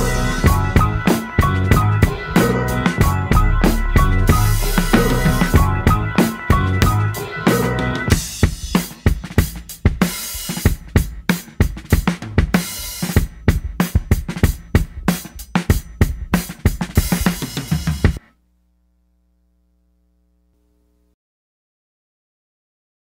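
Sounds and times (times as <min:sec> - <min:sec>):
hip-hop drum beat: 0:00.0 - 0:18.2.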